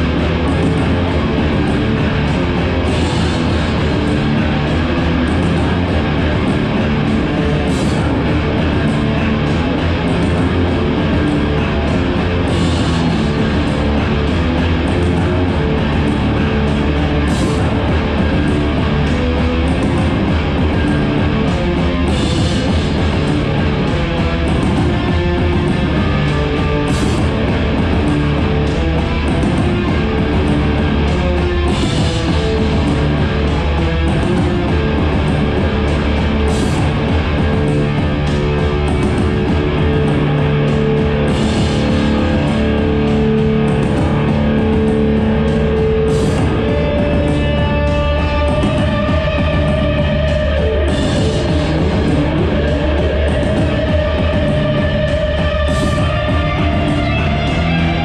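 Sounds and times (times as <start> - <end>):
live heavy rock band: 0.0 - 58.0.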